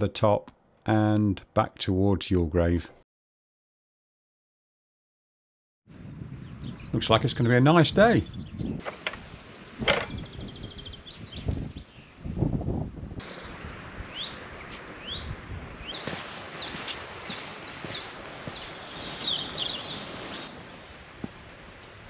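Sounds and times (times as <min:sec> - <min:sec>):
songbirds singing: 0:06.2 - 0:08.9, 0:09.8 - 0:12.5, 0:13.2 - 0:20.8.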